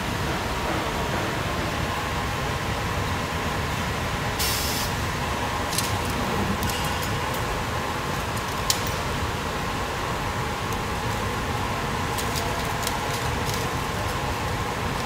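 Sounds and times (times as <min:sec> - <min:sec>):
machinery hum and whir: 0:00.0 - 0:15.0
air hiss: 0:04.4 - 0:05.0.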